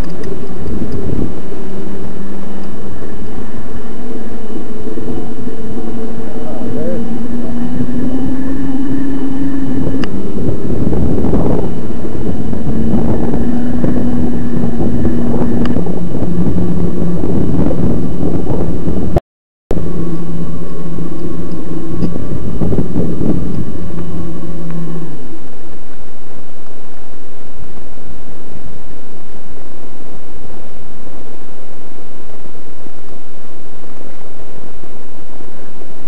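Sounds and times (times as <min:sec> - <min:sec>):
electric bike motor whining: 0:00.0 - 0:27.2
loud rushing noise: 0:00.7 - 0:25.6.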